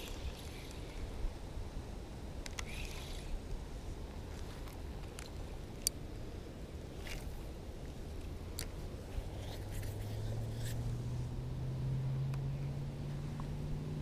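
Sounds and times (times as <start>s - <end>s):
fishing reel clicks: 0.0s - 1.1s, 2.4s - 3.5s
low outdoor rumble: 0.0s - 14.0s.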